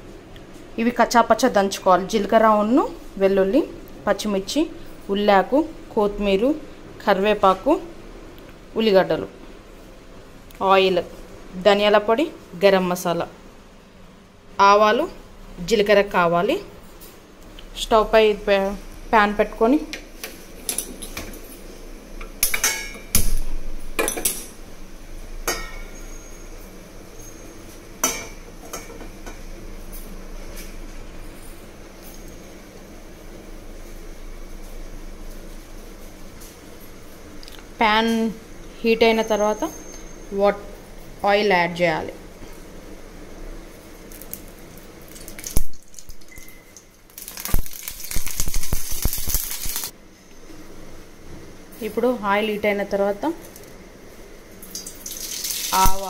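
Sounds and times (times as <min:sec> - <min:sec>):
oil crackling hiss: 0:44.0 - 0:49.9, 0:54.6 - 0:56.0
oil trickling into pan: 0:45.0 - 0:49.9, 0:54.6 - 0:56.0.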